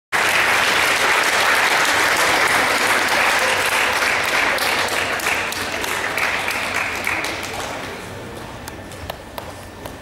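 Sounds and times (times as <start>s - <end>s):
crowd applauding: 0.2s - 8.3s.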